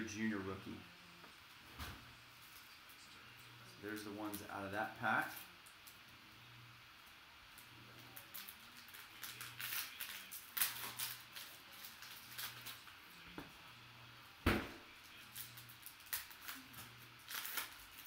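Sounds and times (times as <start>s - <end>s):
cellophane wrapper crinkling: 8.0s - 13.0s, 15.1s - 18.0s.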